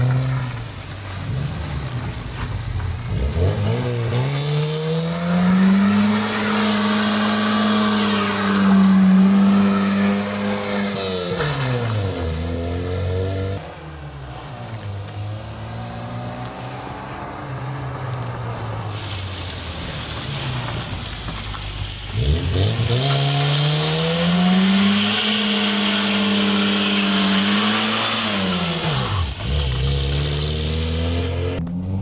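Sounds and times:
car engine revving hard: 3.1s - 13.6s, 22.2s - 32.0s
tyre hiss on wet concrete: 16.5s - 23.6s.

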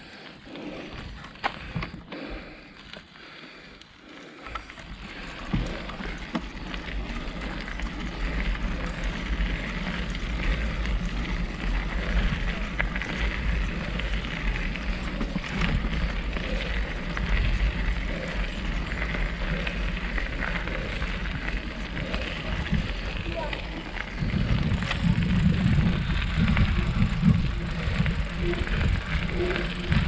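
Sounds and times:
tyres on dirt and gravel: 0.0s - 30.0s
wind rumble on microphone: 4.8s - 30.0s.

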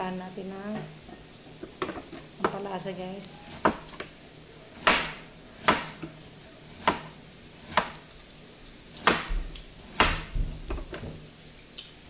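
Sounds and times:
knife slicing cucumber: 6.7s - 8.1s.

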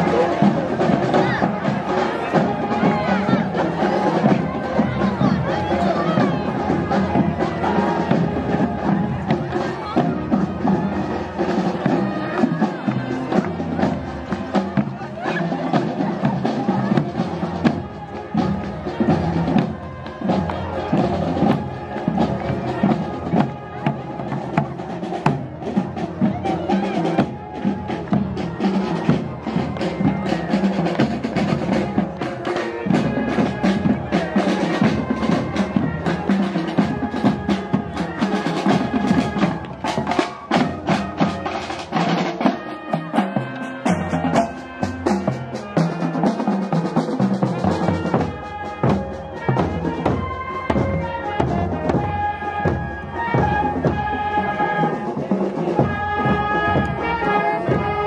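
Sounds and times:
marching drums: 0.0s - 58.0s
trumpets and saxophones playing: 26.2s - 58.0s.

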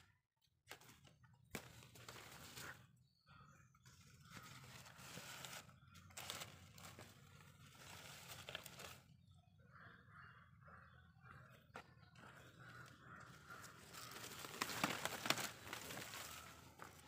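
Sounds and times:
leaves rustling and crinkling: 0.7s - 2.9s, 4.3s - 9.1s, 12.8s - 17.0s
small crackles: 13.5s - 17.0s.

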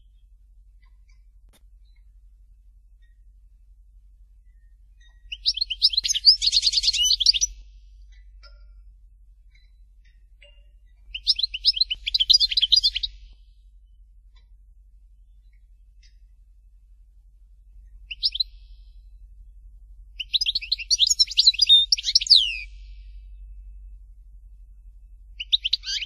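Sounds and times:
goldfinch twittering song: 4.4s - 14.5s, 18.0s - 19.1s, 20.2s - 23.4s, 25.4s - 26.0s.

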